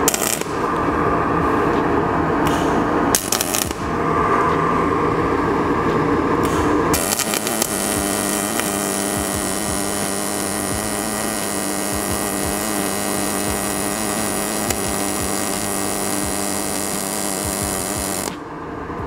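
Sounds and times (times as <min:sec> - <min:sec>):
welding arc buzzing: 0:00.0 - 0:00.8, 0:03.1 - 0:04.0, 0:06.4 - 0:18.4.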